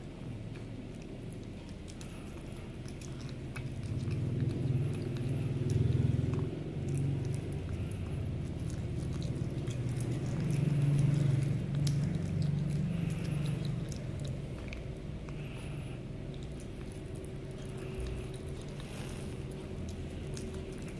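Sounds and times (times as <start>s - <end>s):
cat chewing raw meat: 0.0s - 20.9s
wet clicks and smacks: 0.5s - 15.4s.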